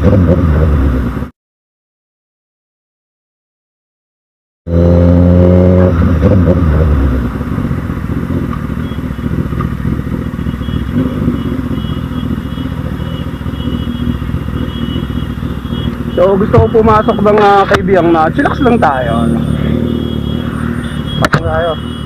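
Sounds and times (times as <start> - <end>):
motorcycle engine running: 4.7 - 22.0.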